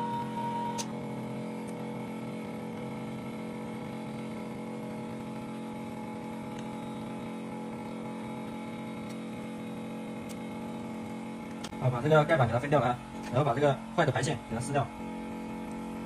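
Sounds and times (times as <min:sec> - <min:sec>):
machine humming: 0:00.0 - 0:16.0.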